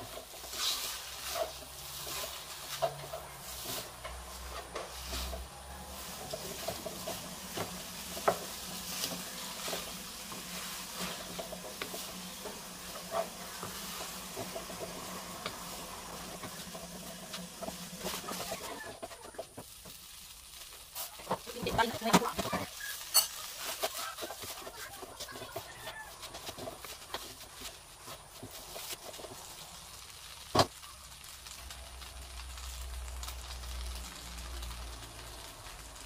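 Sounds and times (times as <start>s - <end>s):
wooden spatula scraping pan: 0.0s - 20.0s, 21.0s - 29.4s
noodles sizzling in a wok: 0.0s - 36.0s.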